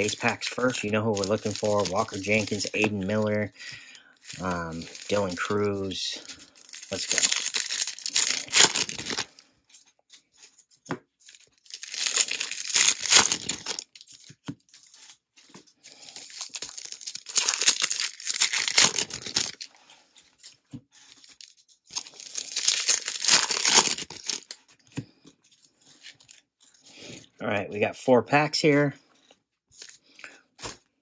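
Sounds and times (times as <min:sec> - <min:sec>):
card pack wrappers tearing: 0:00.0 - 0:09.3, 0:11.3 - 0:15.1, 0:15.9 - 0:19.7, 0:21.2 - 0:24.6.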